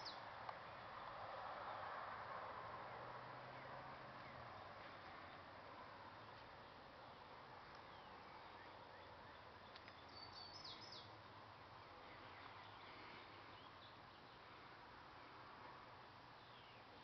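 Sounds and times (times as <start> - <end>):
steady low hiss: 0.0 - 17.0
faint bird chirps: 6.2 - 11.2.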